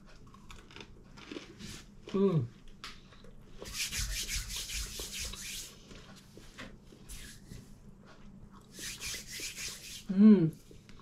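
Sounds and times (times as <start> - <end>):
chewing crusty bread: 0.0 - 3.6.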